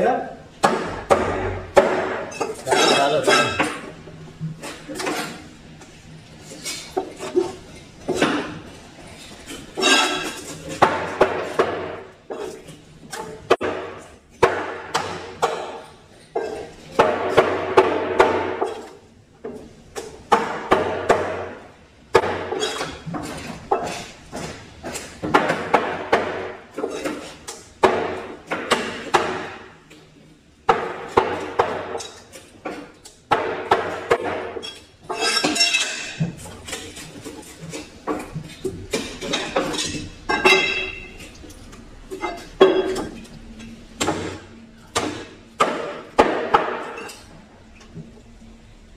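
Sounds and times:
knife chopping on wooden board: 0:00.6 - 0:02.3.

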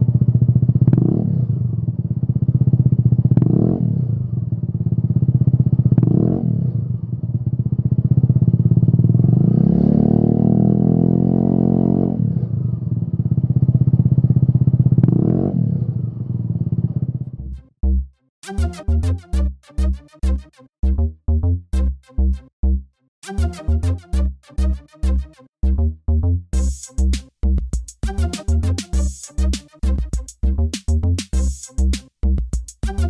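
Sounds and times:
scooter engine idling and revving: 0:00.0 - 0:18.0.

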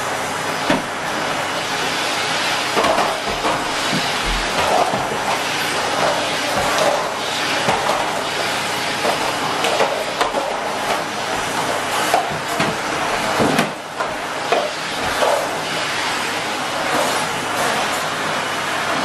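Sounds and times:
vacuum cleaner running: 0:00.0 - 0:19.0
plastic tubs knocking and clattering: 0:09.1 - 0:15.2.

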